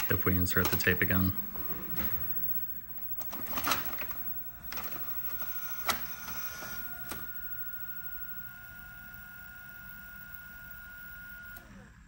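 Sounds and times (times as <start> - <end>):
mechanical clicks and clunks: 0.0 - 7.5
thin whine: 0.0 - 12.0
motor whir: 0.9 - 12.0.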